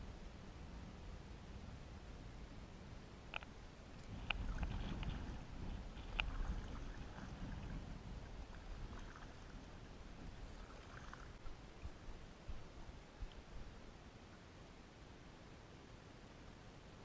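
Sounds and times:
water splashing with paddle strokes: 4.0 - 13.5.

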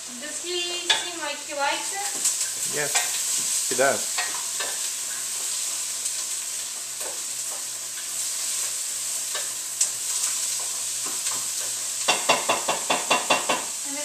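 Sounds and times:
food sizzling in a pan: 0.0 - 14.0
utensil knocking against pan: 12.1 - 13.7.

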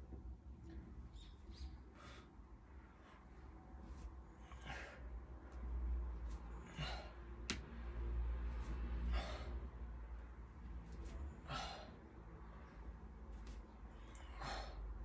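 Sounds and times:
steady low rumble: 0.0 - 15.0
man breathing hard: 4.3 - 5.6, 6.5 - 7.5, 8.9 - 10.0, 11.1 - 12.4, 13.9 - 15.0.

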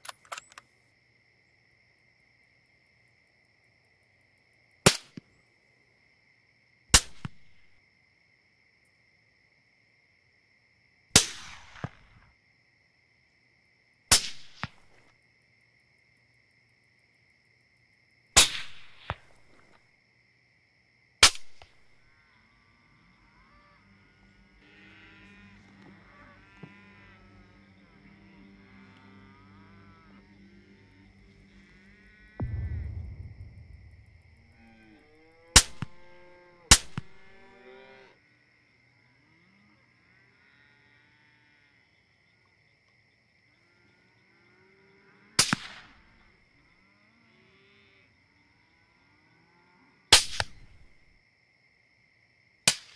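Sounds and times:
faint echo crack: 32.4 - 34.7
rifle shots: 35.6 - 36.0, 45.4 - 45.9.

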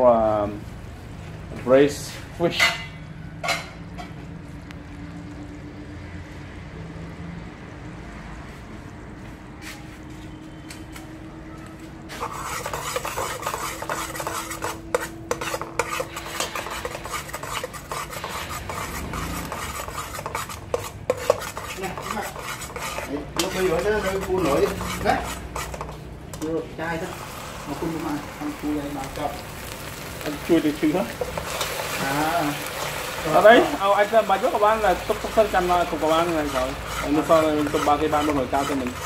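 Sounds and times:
spatula scraping a metal pot: 12.1 - 26.5, 31.1 - 39.0
sugar caramelizing hiss: 26.8 - 39.0.

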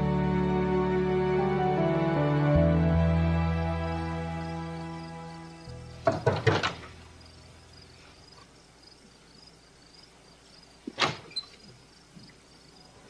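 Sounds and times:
crickets chirping: 2.7 - 13.0
knocking on wooden door: 6.0 - 6.8.

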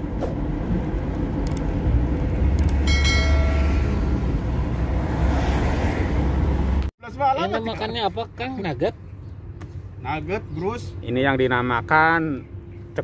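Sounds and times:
vehicle driving rumble: 0.0 - 13.0
short ringing chime: 2.9 - 4.1.

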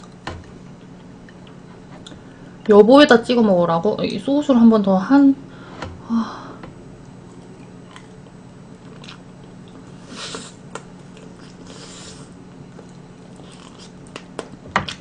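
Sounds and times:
person chewing food: 7.0 - 15.0.

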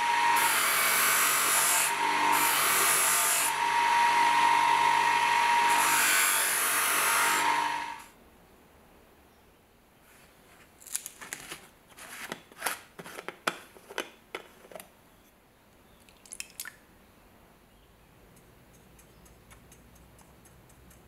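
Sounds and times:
plastic clatter: 11.0 - 14.9
faint light ticks: 18.3 - 21.0.

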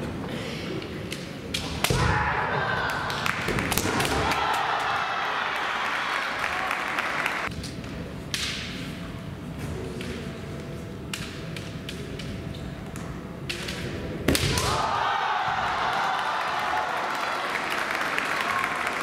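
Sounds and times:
spectators clapping: 2.9 - 7.5, 15.7 - 19.0.

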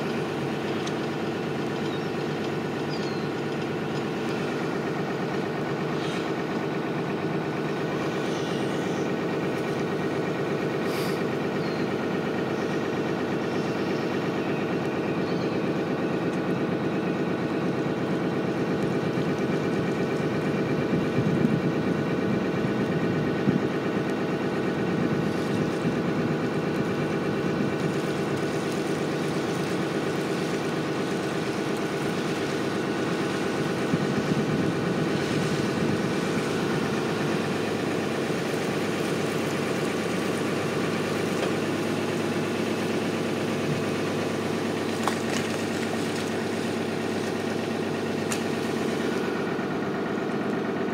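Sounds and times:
boat engine droning: 0.0 - 50.9.

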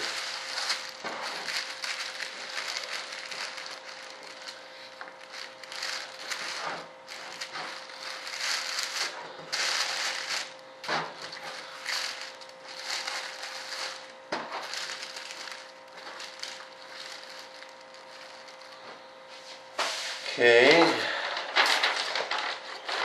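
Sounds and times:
faint hum: 0.0 - 23.0
paper rustling and crinkling: 0.0 - 23.0.

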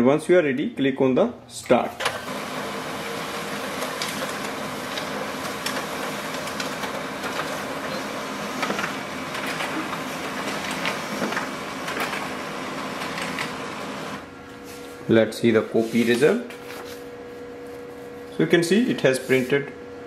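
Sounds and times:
printer whirring: 1.8 - 15.0
printer clicks: 2.0 - 14.2
document feeder pulling paper: 2.0 - 14.3
page feeding out: 2.1 - 14.2.

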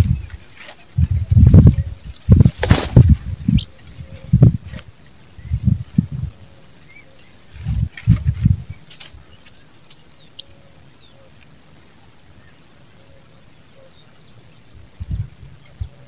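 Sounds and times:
nestlings begging cheeps: 0.0 - 8.2.

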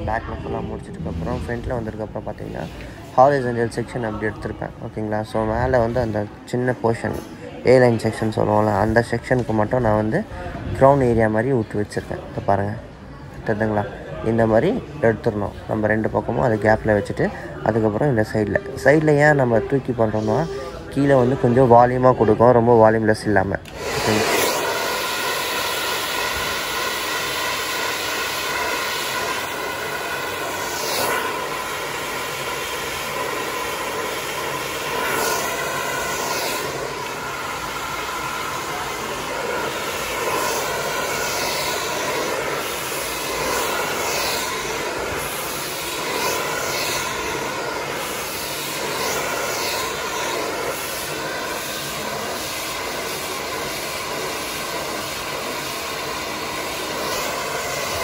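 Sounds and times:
hair dryer running: 23.6 - 58.0.

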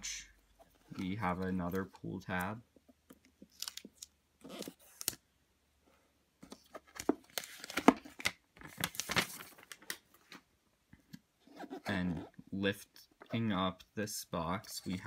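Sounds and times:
paper wrapping tearing and crinkling: 8.6 - 9.9.

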